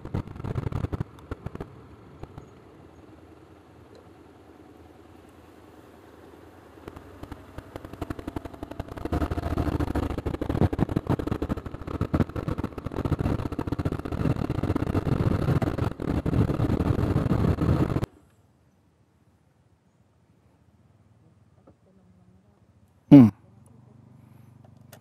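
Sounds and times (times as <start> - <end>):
vehicle engine running roughly: 0.0 - 18.1.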